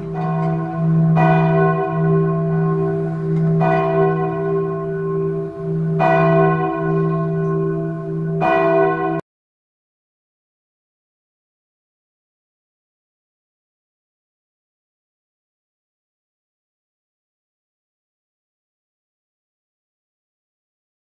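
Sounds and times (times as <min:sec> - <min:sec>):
church bell tolling: 0:00.0 - 0:09.2.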